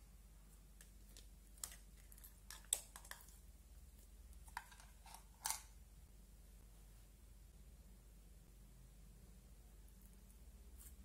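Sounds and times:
plastic spoon scraping slime: 0:00.8 - 0:05.8.

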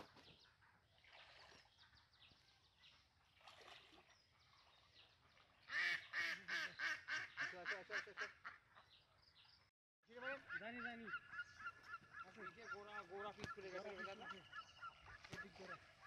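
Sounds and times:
waterfowl honking: 0:05.7 - 0:08.7, 0:10.1 - 0:16.0.

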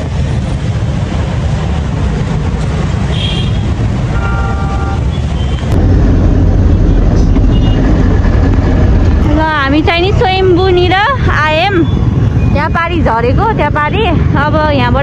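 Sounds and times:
road traffic rumble: 0:00.0 - 0:15.0
vehicle horn: 0:03.1 - 0:05.3.

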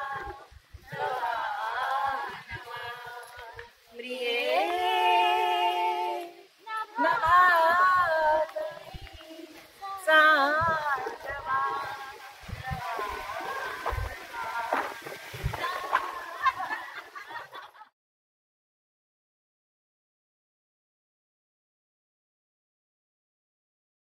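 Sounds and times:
women singing unaccompanied: 0:00.0 - 0:17.4.

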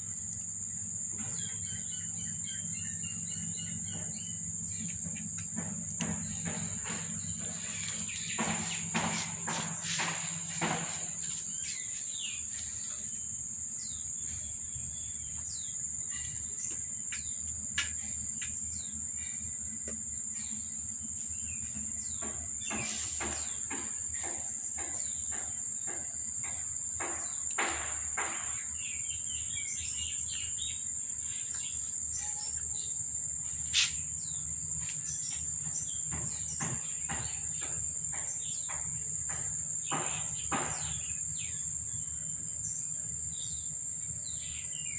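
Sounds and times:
insects calling: 0:00.0 - 0:44.9
small birds chirping: 0:00.1 - 0:44.9.

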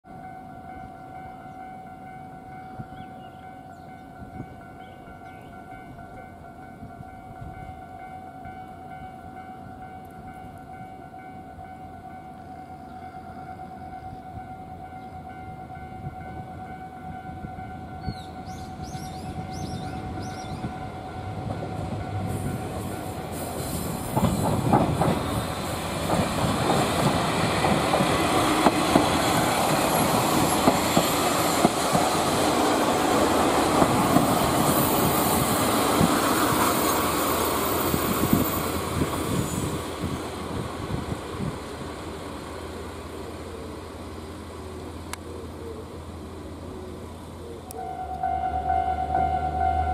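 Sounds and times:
diesel railcar engine: 0:00.1 - 0:49.9
train wheels clacking: 0:21.2 - 0:40.2
level crossing alarm ringing: 0:47.8 - 0:49.9.

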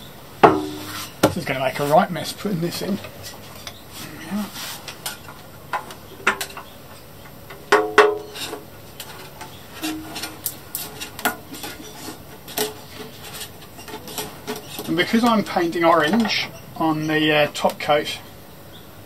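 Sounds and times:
metal tins and tools clinking: 0:07.5 - 0:16.5.

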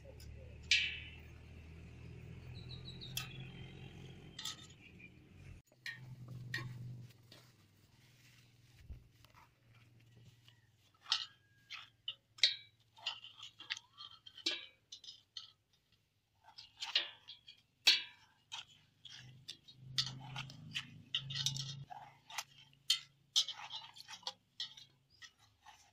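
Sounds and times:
spoon scraping watermelon flesh: 0:09.2 - 0:25.9.

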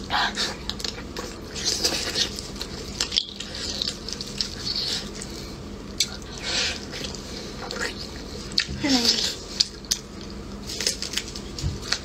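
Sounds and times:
chewing: 0:00.3 - 0:12.0
meat tearing and squishing: 0:00.6 - 0:07.7.

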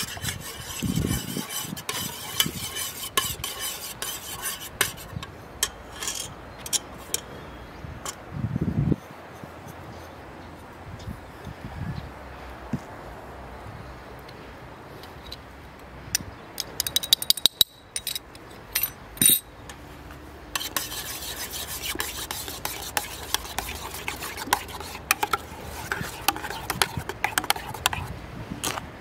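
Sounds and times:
scraping and rubbing: 0:00.0 - 0:07.2, 0:20.6 - 0:28.9.

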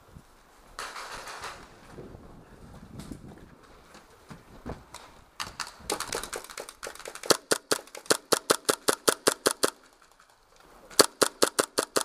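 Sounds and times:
faint airsoft gun shots: 0:05.4 - 0:09.8, 0:11.0 - 0:12.0
rapid sharp airsoft shots: 0:05.4 - 0:09.9, 0:11.0 - 0:12.0.

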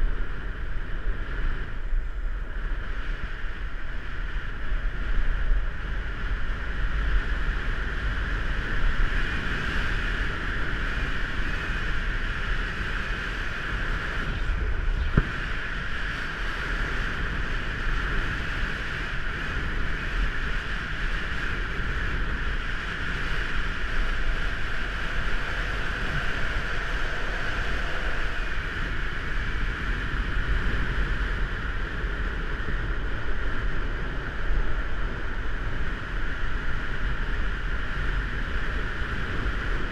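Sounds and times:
longboard wheels rolling on asphalt: 0:00.0 - 0:39.9
wind buffeting microphone: 0:00.0 - 0:39.9.

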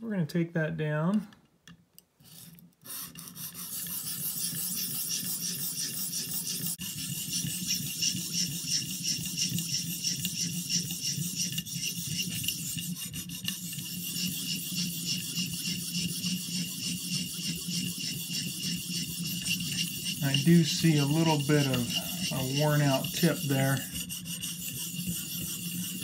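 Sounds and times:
sharpening stone rasping on knife: 0:02.3 - 0:26.0.

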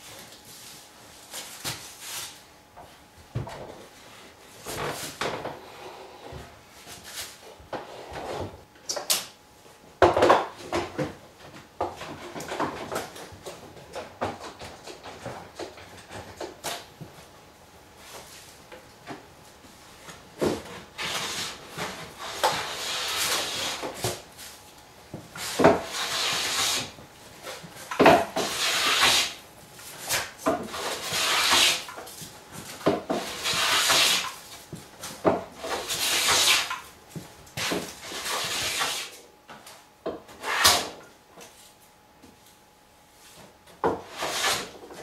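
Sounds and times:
hand plane shaving wood: 0:22.2 - 0:24.0, 0:25.4 - 0:27.0, 0:28.3 - 0:29.4, 0:30.6 - 0:31.9, 0:33.1 - 0:34.3, 0:35.6 - 0:36.7, 0:37.6 - 0:39.2, 0:44.0 - 0:44.8.

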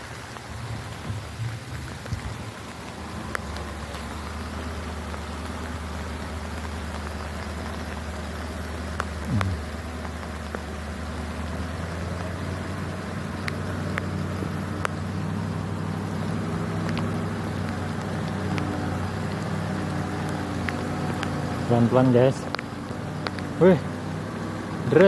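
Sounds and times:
rain ticking on phone: 0:00.0 - 0:25.0
truck diesel engine labouring: 0:00.0 - 0:25.0
sound with falling pitch: 0:09.3 - 0:09.6.

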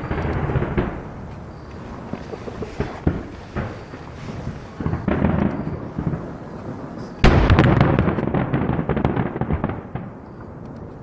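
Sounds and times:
firework crackling: 0:00.0 - 0:10.6
firework shells bursting: 0:00.0 - 0:11.0.

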